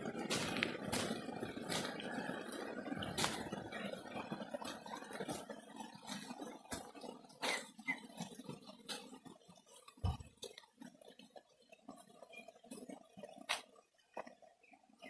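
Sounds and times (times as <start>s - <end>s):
footsteps on stony dirt road: 0.0s - 7.7s.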